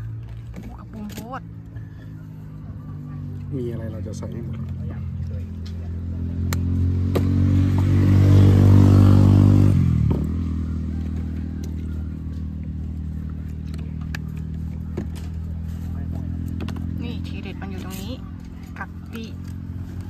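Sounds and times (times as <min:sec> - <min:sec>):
steady engine drone: 0:00.0 - 0:20.0
vehicle passing by: 0:00.0 - 0:20.0.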